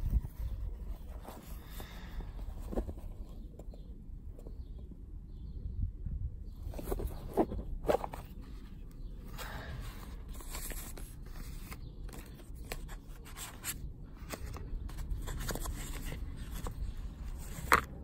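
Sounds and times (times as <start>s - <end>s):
wind rumble on microphone: 0.0s - 1.0s, 4.6s - 7.7s.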